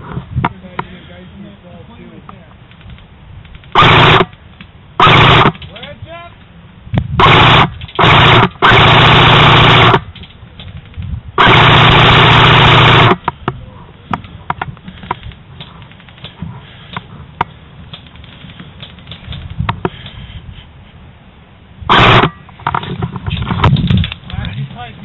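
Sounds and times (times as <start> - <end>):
airsoft rifle full-auto bursts: 3.7 - 4.4, 5.0 - 5.6, 7.2 - 10.1, 11.4 - 13.3, 21.9 - 22.3.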